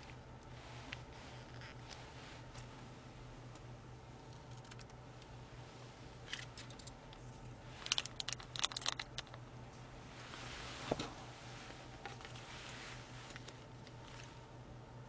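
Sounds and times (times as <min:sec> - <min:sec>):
faint low hum: 0:00.0 - 0:15.0
plastic packaging crackling: 0:07.8 - 0:09.4.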